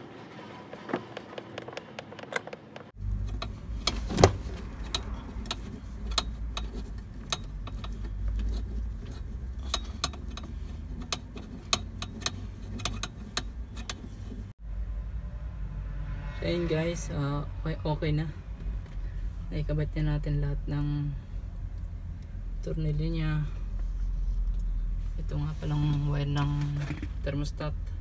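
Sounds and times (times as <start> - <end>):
hand tools clicking and tapping: 1.1 - 14.5
low steady rumble: 2.9 - 28.0.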